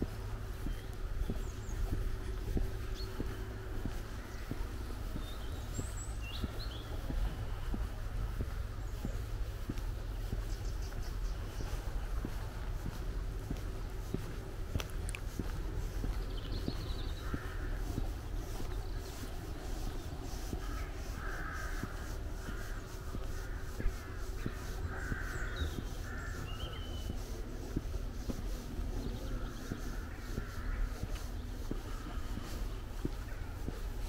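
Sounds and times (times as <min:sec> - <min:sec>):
low outdoor rumble: 0:00.0 - 0:34.0
soft footsteps: 0:00.0 - 0:34.0
crows cawing: 0:17.2 - 0:27.3, 0:29.3 - 0:33.3.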